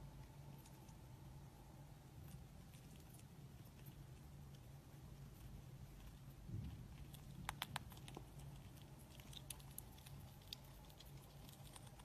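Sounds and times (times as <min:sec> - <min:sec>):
low steady hum: 0:00.0 - 0:12.0
squirrel nibbling clicks: 0:06.0 - 0:12.0.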